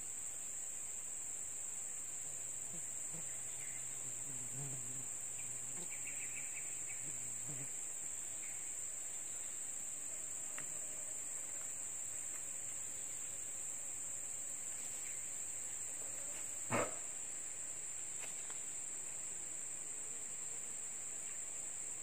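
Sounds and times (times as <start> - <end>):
insects buzzing: 0.0 - 22.0.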